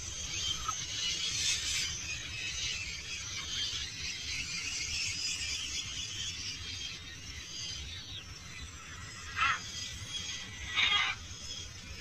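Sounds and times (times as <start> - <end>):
birds chattering and calling: 0.0 - 12.0
harsh bird squawk: 9.1 - 9.7, 10.4 - 11.3.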